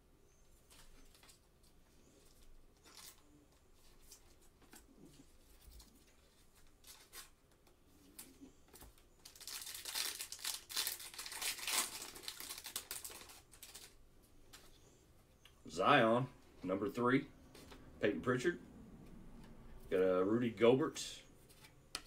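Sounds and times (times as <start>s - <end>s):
foil wrapper crinkling and tearing: 9.2s - 14.0s.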